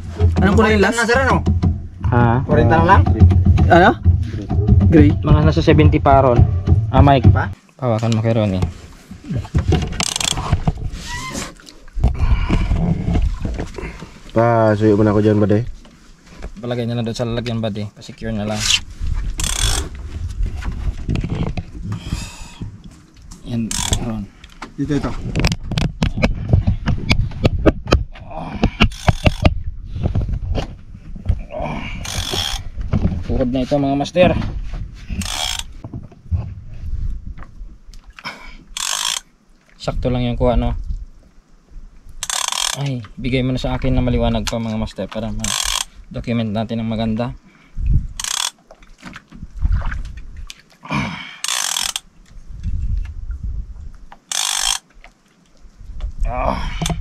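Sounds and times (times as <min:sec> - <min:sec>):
low rumble: 0:00.0 - 0:07.6
fishing reel clicking: 0:19.4 - 0:19.8, 0:23.7 - 0:24.1, 0:32.0 - 0:32.6, 0:35.2 - 0:35.7, 0:38.8 - 0:39.3, 0:42.2 - 0:42.9, 0:45.4 - 0:45.9, 0:48.2 - 0:48.6, 0:51.4 - 0:52.1, 0:54.3 - 0:54.8
low rumble of rod handling: 0:51.5 - 0:54.8.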